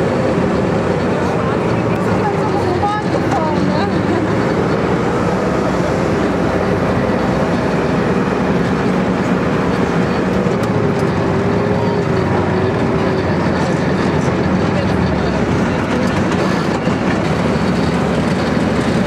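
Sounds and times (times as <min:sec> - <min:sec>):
tank diesel engine rumbling: 0:00.0 - 0:19.0
steel tracks clattering: 0:00.3 - 0:19.0.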